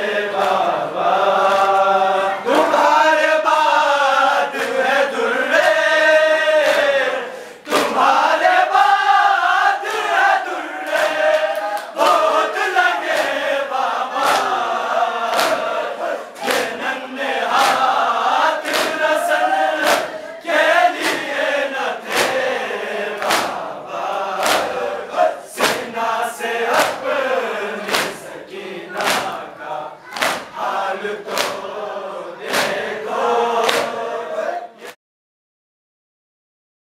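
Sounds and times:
men chanting together: 0:00.0 - 0:35.0
chest-beating slaps: 0:07.6 - 0:08.0, 0:10.8 - 0:12.3, 0:13.0 - 0:13.5, 0:14.2 - 0:14.7, 0:15.3 - 0:15.7, 0:16.3 - 0:16.8, 0:17.5 - 0:18.0, 0:18.6 - 0:19.1, 0:19.8 - 0:20.2, 0:20.9 - 0:21.4, 0:22.0 - 0:22.5, 0:23.1 - 0:24.9, 0:25.5 - 0:26.0, 0:26.7 - 0:27.1, 0:27.8 - 0:28.3, 0:28.9 - 0:31.7, 0:32.4 - 0:32.9, 0:33.6 - 0:34.0.

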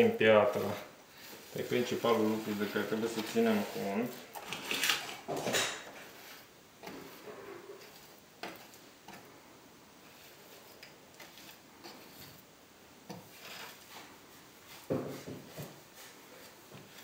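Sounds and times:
trowel scraping grout: 0:00.0 - 0:09.3, 0:10.0 - 0:12.5, 0:13.1 - 0:17.0
trowel scuff: 0:00.4 - 0:07.2, 0:13.1 - 0:17.0.

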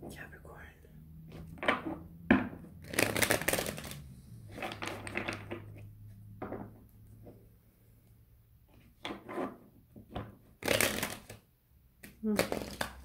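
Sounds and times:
cards tapping: 0:01.6 - 0:04.0, 0:12.0 - 0:13.0
cards being shuffled: 0:02.8 - 0:05.9, 0:10.5 - 0:11.4, 0:12.0 - 0:13.0.

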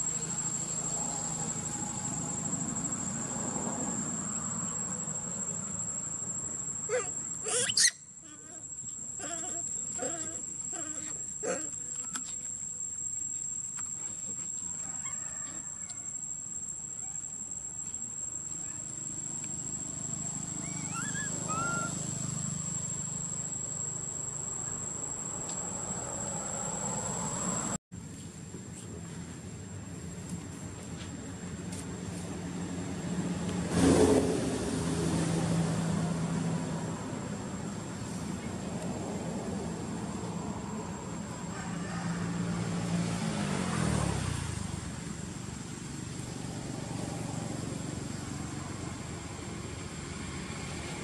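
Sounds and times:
high-pitched insect drone: 0:00.0 - 0:27.8
rising chirps: 0:04.0 - 0:10.6, 0:15.2 - 0:24.6.

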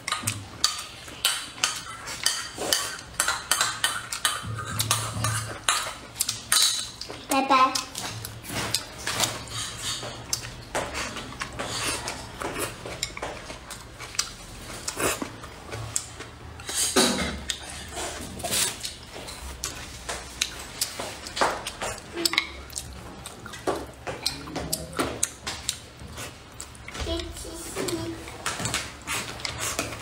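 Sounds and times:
wet chewing and lip smacking: 0:00.0 - 0:26.9
chopsticks clicking on a plate: 0:10.0 - 0:15.0.

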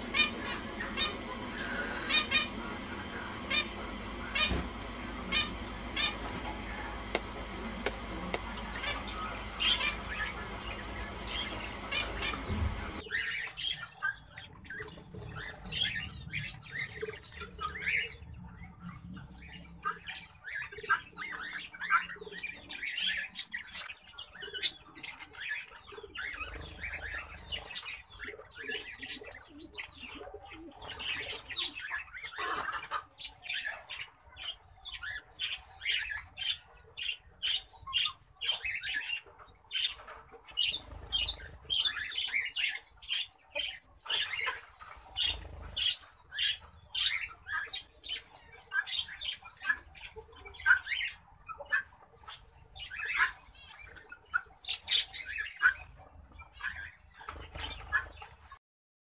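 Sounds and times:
finches chirping: 0:00.0 - 0:18.2, 0:34.4 - 0:58.2.

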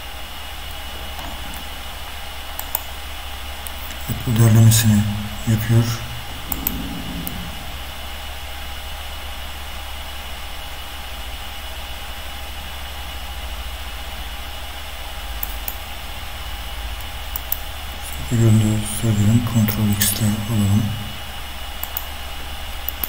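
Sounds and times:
low hum: 0:00.5 - 0:09.3
computer mouse clicks: 0:02.6 - 0:02.9, 0:06.4 - 0:07.6, 0:21.8 - 0:22.1.

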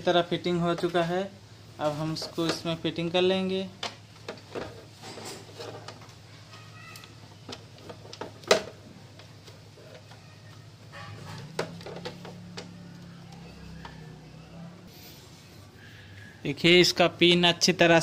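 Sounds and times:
plastic clicks and knocks: 0:07.0 - 0:10.2.

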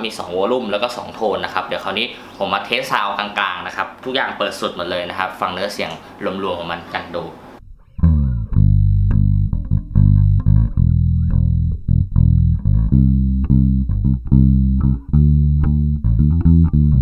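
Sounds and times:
electric bass plucked fingerstyle: 0:07.6 - 0:17.0.

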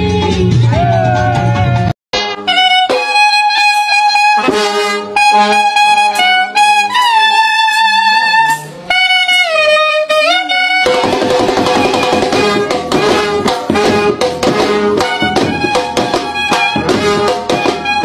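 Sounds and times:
brass band music: 0:02.1 - 0:18.0
horn playing slow melody: 0:02.2 - 0:11.2, 0:12.3 - 0:18.0.

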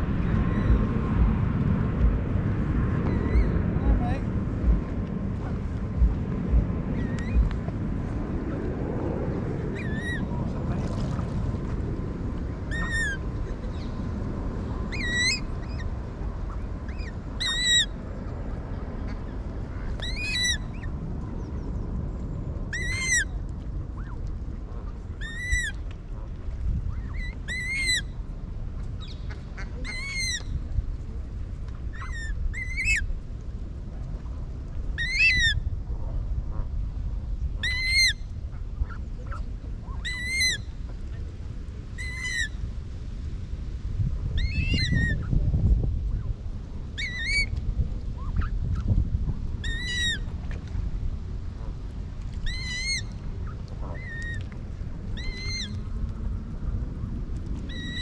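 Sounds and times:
steady low rumble: 0:00.0 - 0:58.0
water bird short high calls: 0:12.7 - 0:13.9, 0:14.9 - 0:15.9, 0:16.5 - 0:18.0, 0:22.7 - 0:23.4, 0:25.2 - 0:25.8, 0:26.9 - 0:28.2, 0:29.0 - 0:30.6, 0:35.0 - 0:35.6, 0:37.6 - 0:38.2, 0:38.8 - 0:40.7, 0:42.0 - 0:42.6, 0:47.0 - 0:47.6, 0:49.6 - 0:50.6, 0:51.7 - 0:56.0, 0:57.7 - 0:58.0.

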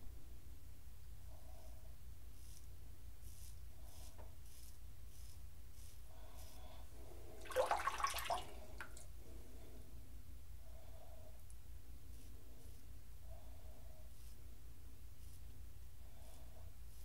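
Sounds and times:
water splashing in sink: 0:07.4 - 0:09.0.

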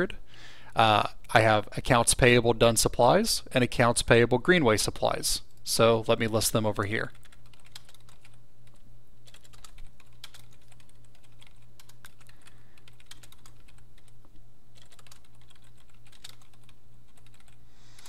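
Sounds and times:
faint steady hum: 0:00.0 - 0:18.0
keyboard typing clicks: 0:07.2 - 0:14.2, 0:14.8 - 0:17.6.

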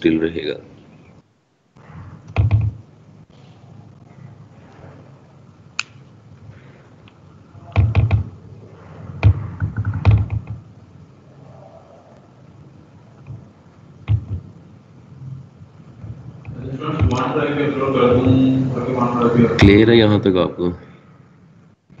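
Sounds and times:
faint steady hiss: 0:00.0 - 0:22.0
sharp clicks and dull knocks: 0:09.2 - 0:10.6, 0:14.1 - 0:14.5.

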